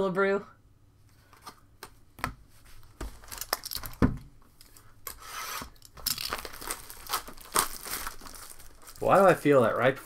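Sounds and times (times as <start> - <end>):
wrapper crinkling: 3.1 - 4.0, 5.8 - 9.9.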